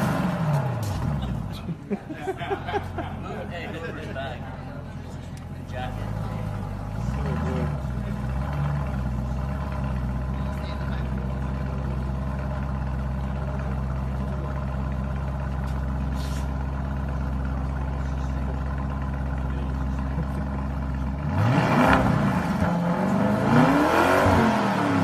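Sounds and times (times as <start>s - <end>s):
car engine idling and revving: 0.0s - 25.0s.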